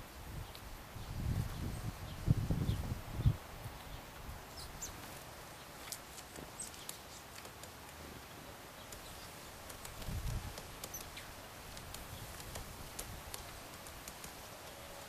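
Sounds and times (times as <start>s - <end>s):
faint bird chirps: 0.4s - 7.4s, 8.7s - 10.0s, 10.8s - 11.4s
woodpecker pecking at feeder: 5.8s - 15.0s.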